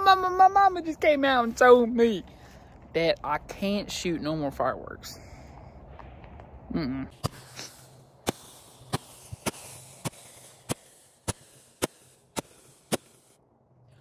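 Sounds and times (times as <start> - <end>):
faint hiss: 6.8 - 13.4
sharp evenly spaced clicks: 7.2 - 13.4.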